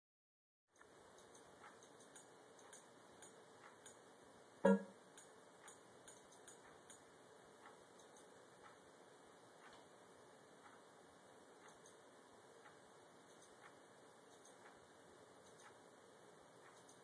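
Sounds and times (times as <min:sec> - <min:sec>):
short pitched tone: 0:04.6 - 0:04.9
soft menu navigation clicks: 0:04.6 - 0:05.0.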